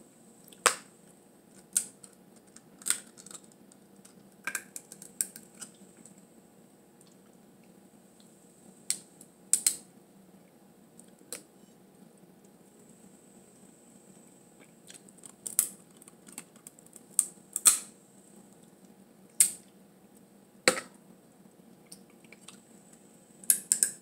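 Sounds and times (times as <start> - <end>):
crab shells cracking: 1.5 - 5.7, 14.8 - 17.9, 23.5 - 24.0.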